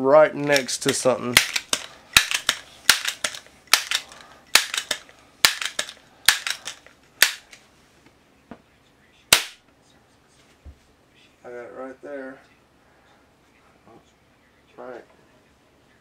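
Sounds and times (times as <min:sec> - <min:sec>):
pellet pistol pump clacks: 0:00.5 - 0:07.6
pellet pistol shot: 0:09.3 - 0:09.6.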